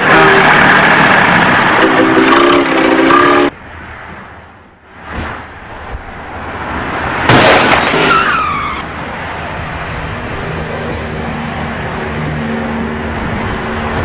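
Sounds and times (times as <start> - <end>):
traffic noise: 0.0 - 14.0
loud car crash: 7.2 - 8.9
tyres screeching: 7.3 - 8.9.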